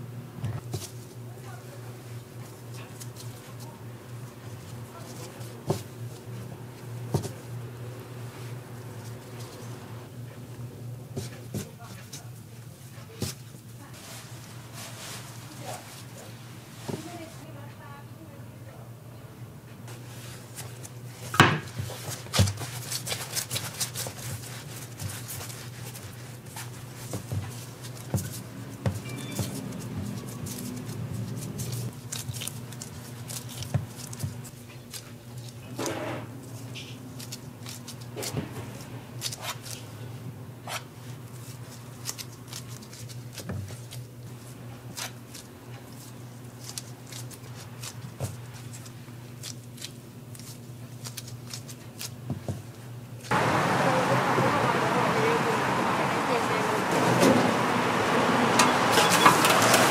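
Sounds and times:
steady low hum: 0.0s - 58.2s.

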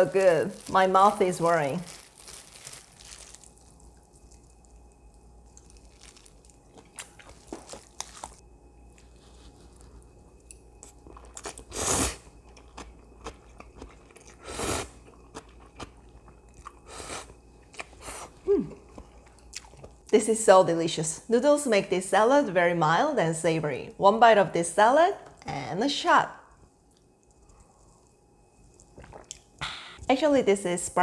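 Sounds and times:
chewing: 2.6s - 11.8s, 12.4s - 20.1s
person slurping noodles: 11.6s - 12.2s, 14.4s - 14.9s.

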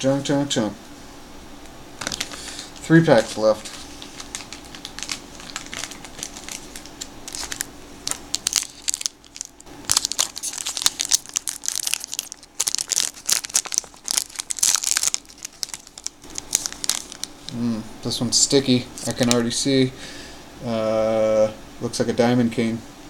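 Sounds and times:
foil wrapper tearing and crinkling: 2.0s - 17.6s.

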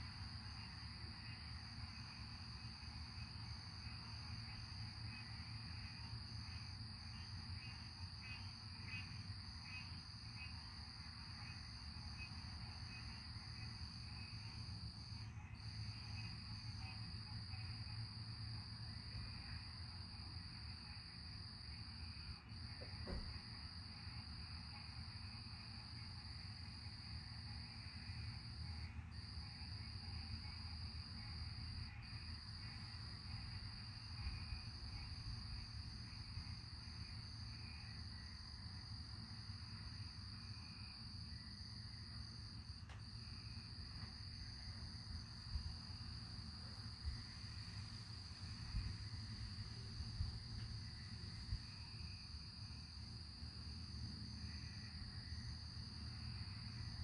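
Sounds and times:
short knock: 22.8s - 23.3s.

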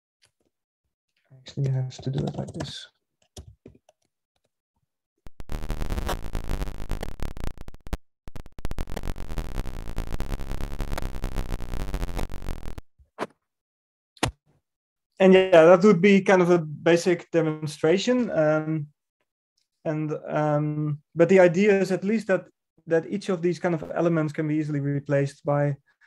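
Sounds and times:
keyboard clicks: 1.6s - 4.0s.

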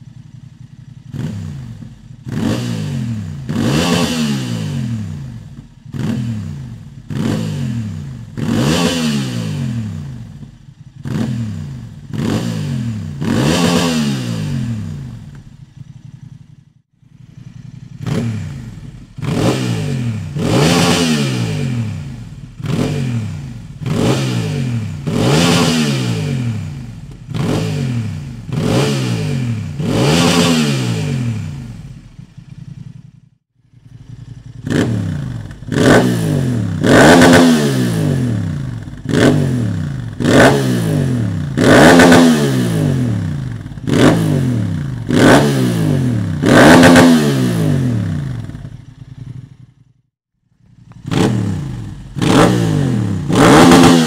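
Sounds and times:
motorcycle engine revving blips: 0.1s - 49.7s, 50.6s - 54.0s.

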